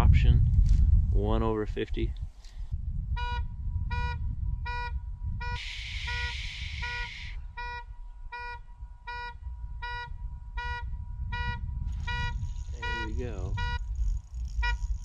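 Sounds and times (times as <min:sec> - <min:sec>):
low rumble: 0:00.0 - 0:15.0
short electronic beeps: 0:03.2 - 0:15.0
hiss: 0:05.6 - 0:07.4.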